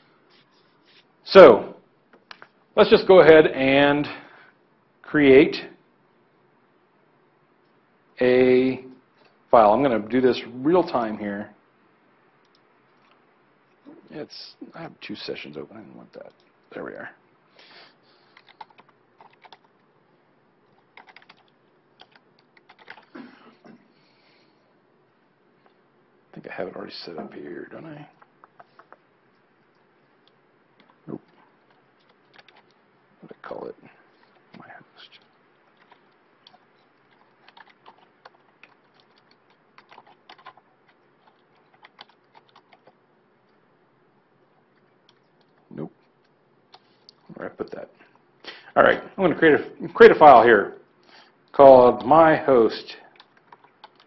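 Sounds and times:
keyboard typing: 18.3 - 19.8, 20.6 - 23.2, 28.1 - 32.8, 34.2 - 43.0, 44.6 - 47.2, 53.1 - 54.0.

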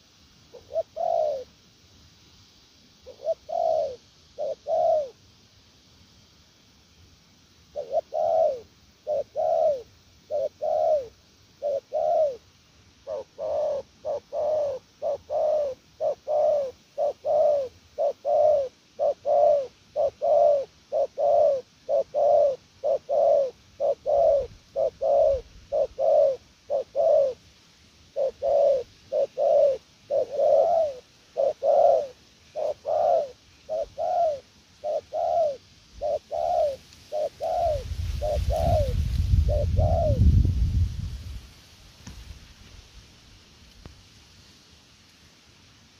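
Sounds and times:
dove cooing: 0.0 - 1.5, 3.0 - 5.2, 7.7 - 27.4, 28.1 - 40.5.

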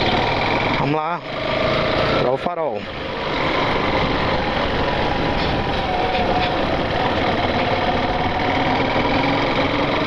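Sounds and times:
motorcycle engine running: 0.0 - 6.0, 6.6 - 10.0
road and wind rumble: 0.0 - 10.0.

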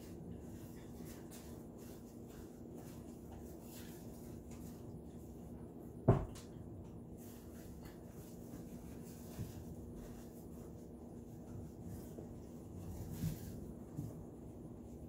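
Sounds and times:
rubbing and handling noise: 0.0 - 6.0, 6.9 - 15.0
dull thump: 6.1 - 6.4.

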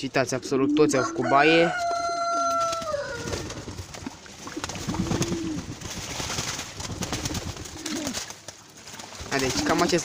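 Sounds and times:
pigeons cooing: 0.0 - 6.0, 6.8 - 8.3, 9.4 - 10.0
birds splashing in water: 2.1 - 10.0.

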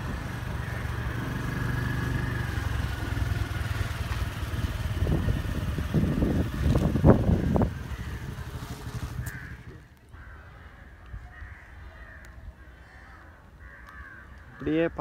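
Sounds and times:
faint bird calls: 0.0 - 4.6, 6.4 - 15.0
passing vehicle engine rumble: 0.0 - 10.4.

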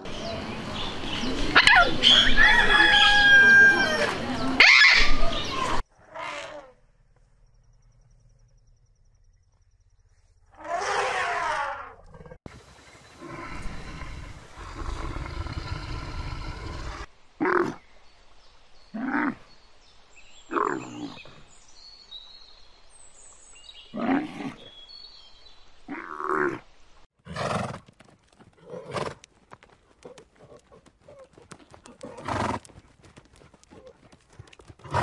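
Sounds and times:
bear growling: 13.2 - 17.8.

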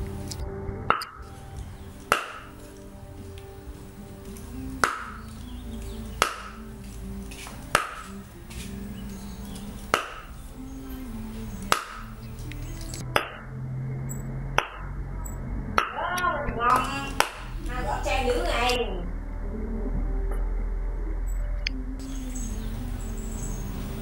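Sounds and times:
knife chopping on wooden board: 2.1 - 2.5, 9.9 - 10.2.

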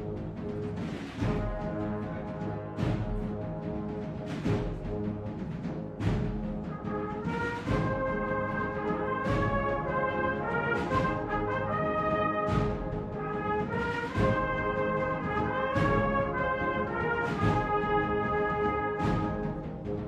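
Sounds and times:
heavy drum beat: 0.0 - 19.9
brass band playing a march: 0.0 - 20.0.

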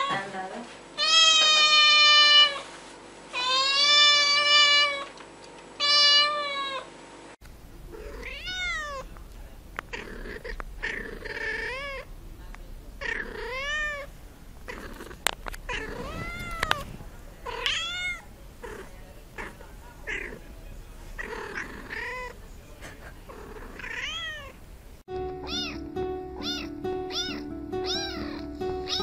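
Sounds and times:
cat meowing: 3.4 - 5.1, 5.8 - 6.9, 7.8 - 12.1, 12.9 - 22.4, 23.3 - 24.6, 25.4 - 25.8, 26.4 - 29.0.

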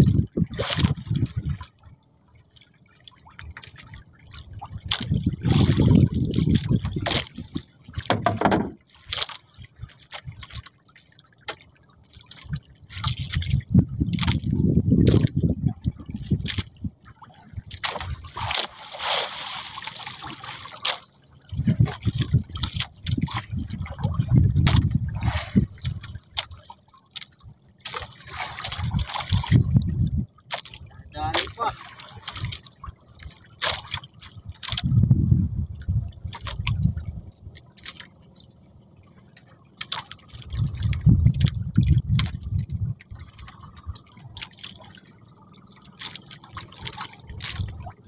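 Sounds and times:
water splashing against boat: 0.0 - 48.0
low rumbling: 21.4 - 26.3, 28.8 - 31.2, 34.4 - 37.6, 40.4 - 44.4.

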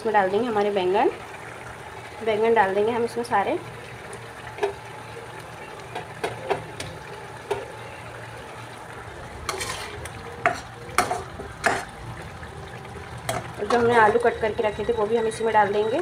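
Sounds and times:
gravy sizzling: 0.0 - 16.0
spatula stirring and knocking pan: 9.4 - 12.0, 13.2 - 14.4.

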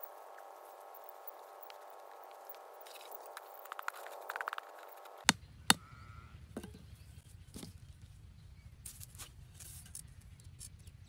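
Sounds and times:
hand blade scraping dry earth: 1.6 - 5.2.

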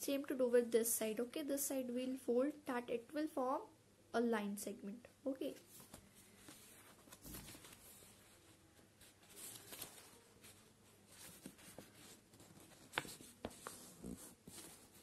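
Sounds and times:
paper rustling being folded: 5.7 - 15.0.

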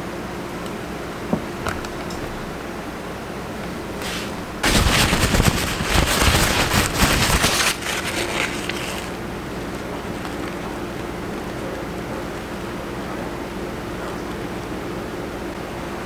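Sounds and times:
powder pouring gritty rattle: 4.0 - 9.2.

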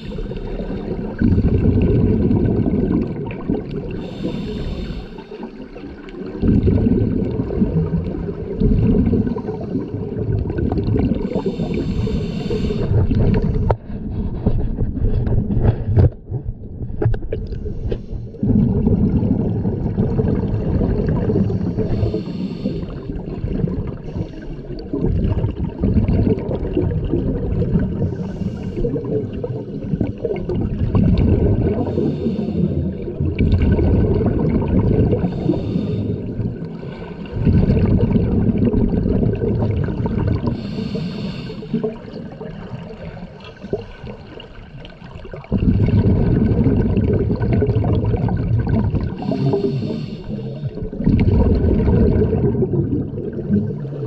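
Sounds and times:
bubbles gurgling underwater: 0.0 - 54.0
regulator inhalation hiss: 4.0 - 5.4, 11.4 - 12.9, 21.7 - 23.0, 35.3 - 36.2, 40.6 - 41.8, 49.2 - 50.8.

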